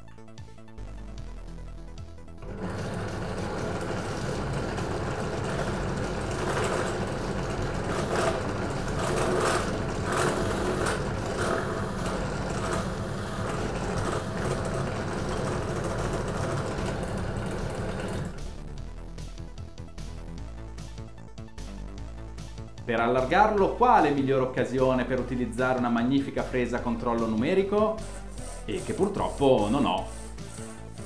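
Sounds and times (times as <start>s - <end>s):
drill bit cutting plastic: 2.4s - 18.4s, 27.2s - 31.0s
drill press motor humming: 2.4s - 19.2s, 27.1s - 31.0s.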